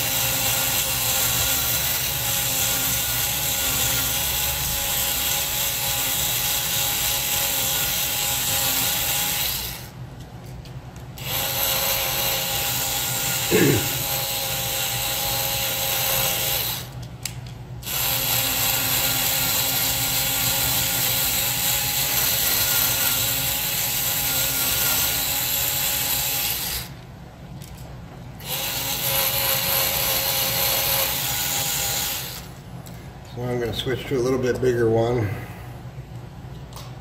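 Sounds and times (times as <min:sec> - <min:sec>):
small power drill running: 0:00.0 - 0:10.0, 0:11.2 - 0:17.0, 0:17.8 - 0:27.0, 0:28.4 - 0:32.6.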